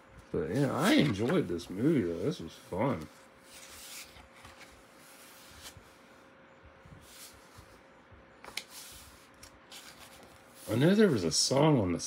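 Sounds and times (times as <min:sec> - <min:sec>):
faint steady hum: 0:00.0 - 0:12.0
book pages rustling: 0:00.5 - 0:05.9, 0:08.4 - 0:11.3.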